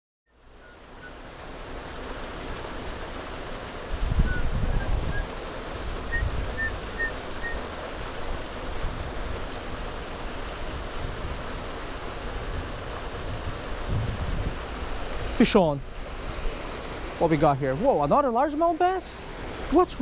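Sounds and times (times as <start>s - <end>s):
small waterfall rushing: 0.3s - 20.0s
wind buffeting microphone: 3.8s - 7.6s, 10.6s - 16.6s.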